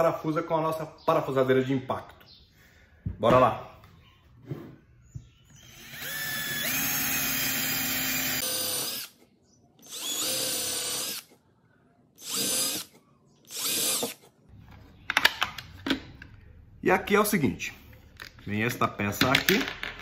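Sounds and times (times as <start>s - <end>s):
drill boring into wood: 5.6s - 9.2s, 9.8s - 11.3s, 12.2s - 12.9s, 13.5s - 14.2s.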